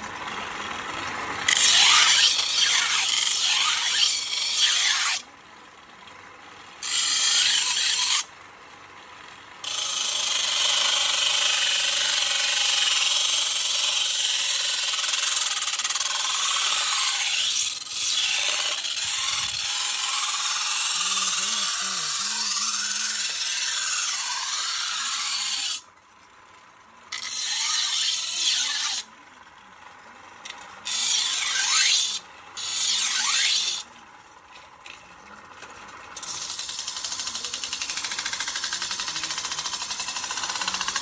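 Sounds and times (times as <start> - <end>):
knife scraping on grinding wheel: 1.5 - 5.2, 6.8 - 8.3, 9.6 - 25.9, 27.1 - 29.1, 30.5 - 33.9, 36.2 - 41.0.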